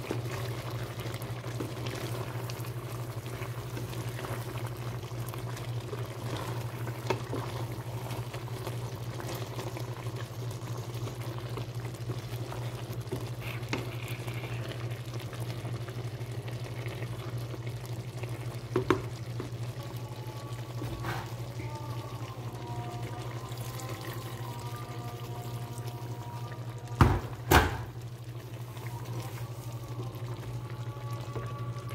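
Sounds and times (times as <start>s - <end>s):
wooden spoon stirring: 0.0s - 15.4s, 28.3s - 31.9s
stew simmering in a pot: 0.0s - 31.9s.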